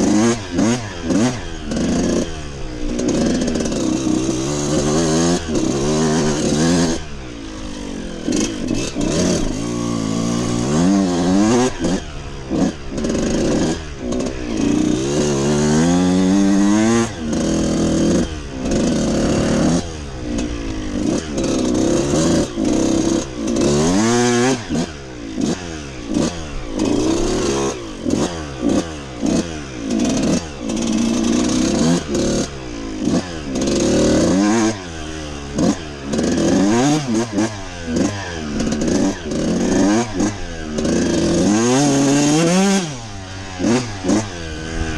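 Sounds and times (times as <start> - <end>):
dirt bike engine revving: 0.0 - 44.9.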